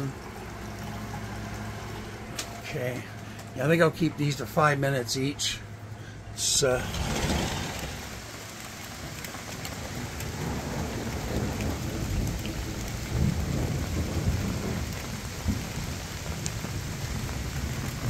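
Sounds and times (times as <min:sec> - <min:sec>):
heavy rain: 0:00.0 - 0:04.8, 0:05.6 - 0:18.0
low rolling thunder: 0:06.6 - 0:08.4, 0:09.7 - 0:18.0.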